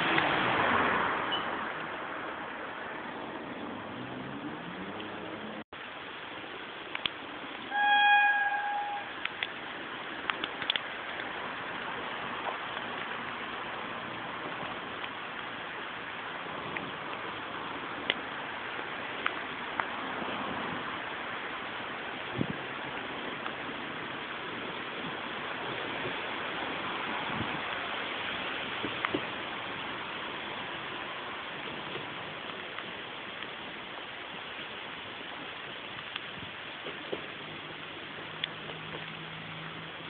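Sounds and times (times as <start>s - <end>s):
faint clicks: 6.9s - 7.2s, 10.2s - 11.3s
train horn: 7.7s - 9.2s.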